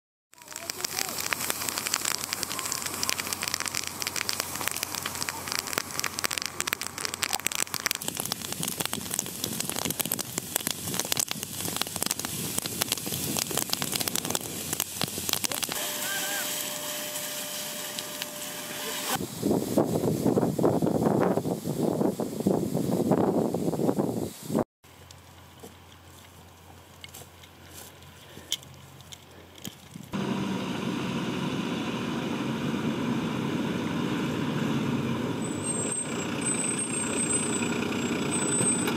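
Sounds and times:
burning stubble crackling: 0.3s - 23.7s, 24.3s - 38.9s
fire hose water spray hissing: 0.4s - 24.6s
wind on microphone: 19.2s - 24.6s.

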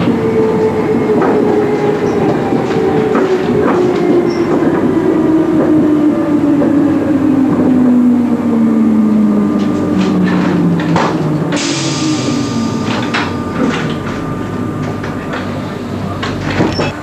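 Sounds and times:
traction motor whine: 0.0s - 17.0s
compressed air hiss: 11.6s - 12.7s.

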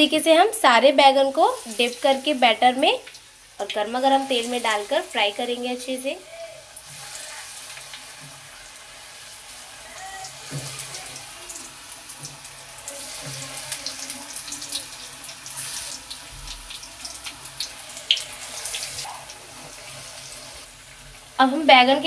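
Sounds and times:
deep-frying sizzle with pops: 0.0s - 22.0s.

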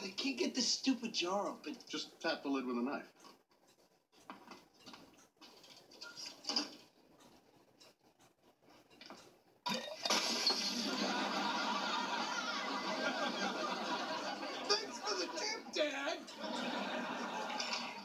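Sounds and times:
glass jar breaking: 9.7s - 10.9s
studio audience laughter: 10.1s - 18.0s.

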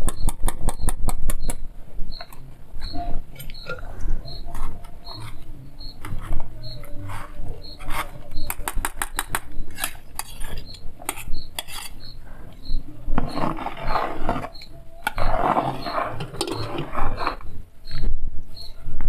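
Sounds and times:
faint high peep: 1.4s - 8.7s.

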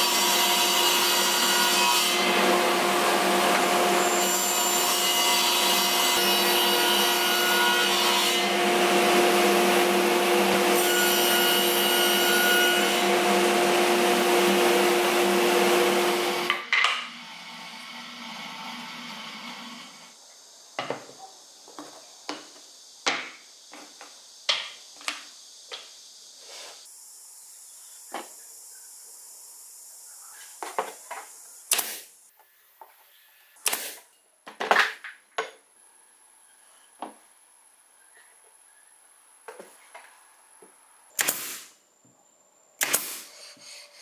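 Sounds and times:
table saw running: 0.1s - 20.1s.

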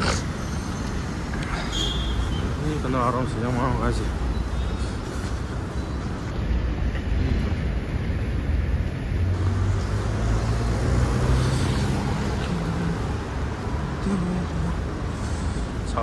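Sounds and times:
cars driving past: 0.0s - 16.0s.

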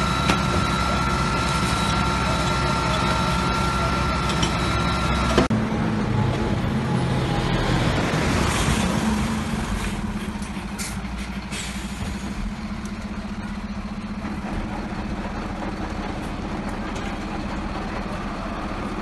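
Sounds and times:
fire engine engine humming: 0.0s - 19.0s.

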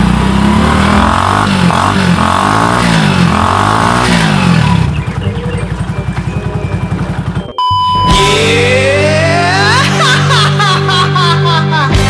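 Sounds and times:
motorcycle engine revving and idling: 0.0s - 9.2s.

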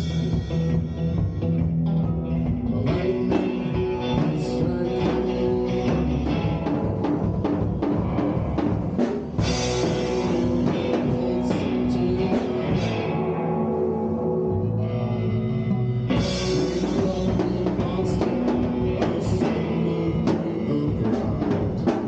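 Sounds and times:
electric guitar: 0.0s - 22.0s.

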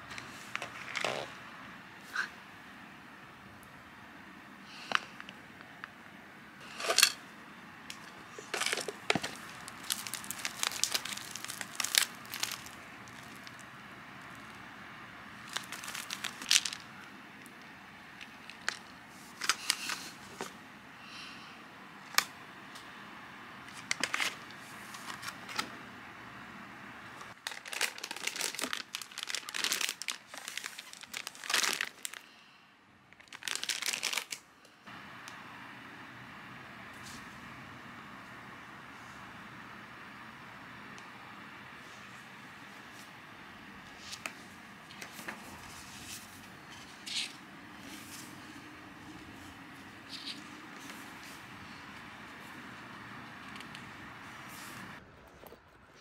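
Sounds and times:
plastic bag rustling: 8.2s - 14.6s, 15.4s - 17.0s, 27.3s - 32.2s, 33.2s - 34.4s
plastic packaging crinkling: 8.3s - 14.6s, 15.4s - 17.0s, 18.2s - 20.2s, 27.3s - 32.2s, 33.1s - 34.4s.

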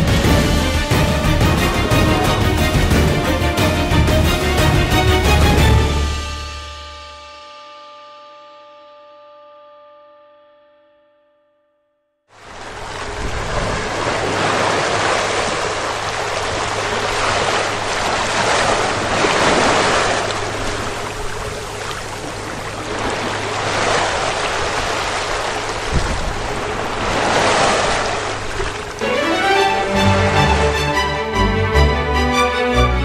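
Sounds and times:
water splashing along ship hull: 0.0s - 6.6s, 12.4s - 33.0s
wind on microphone: 22.9s - 28.8s.

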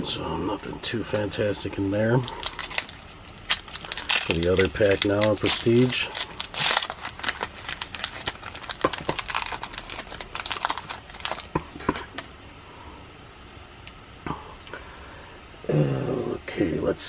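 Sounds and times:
card pack wrapper crinkling: 2.1s - 12.3s
card handling: 2.2s - 12.3s.

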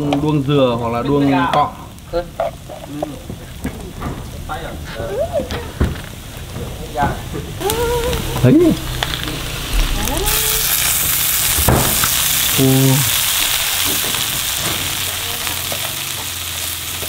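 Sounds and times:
food sizzling in a pan: 0.0s - 17.0s
knock: 11.6s - 12.0s.

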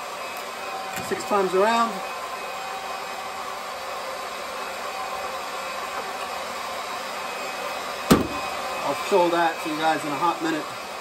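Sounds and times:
water pump whirring: 0.0s - 11.0s.

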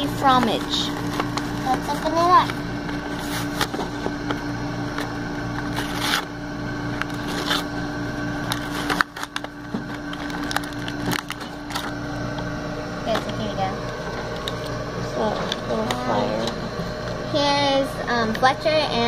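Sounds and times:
steady low hum: 0.0s - 19.0s
toy packaging crinkling: 8.4s - 11.9s.

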